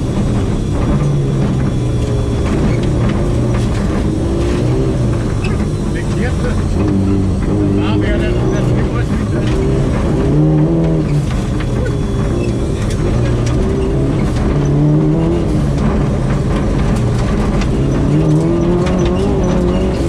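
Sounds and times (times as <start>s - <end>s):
car engine revving: 0.0s - 20.0s
gravel hitting car underside: 9.0s - 20.0s.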